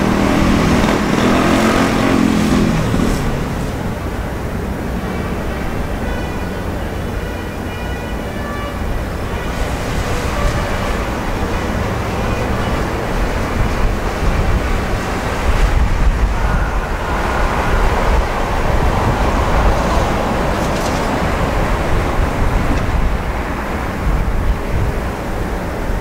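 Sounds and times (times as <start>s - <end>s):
low harbour rumble: 0.0s - 26.0s
wind buffeting microphone: 8.8s - 26.0s.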